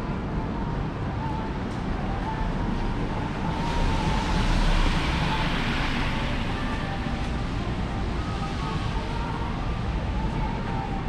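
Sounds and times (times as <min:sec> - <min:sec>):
traffic tyres on wet road: 0:02.8 - 0:10.5.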